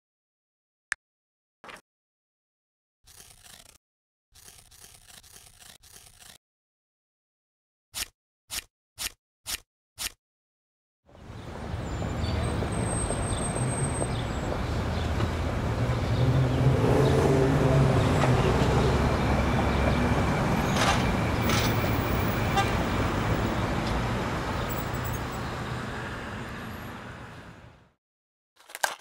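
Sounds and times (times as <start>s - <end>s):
cars passing with low rumble: 11.1s - 28.0s
car horn tooting: 22.4s - 22.9s.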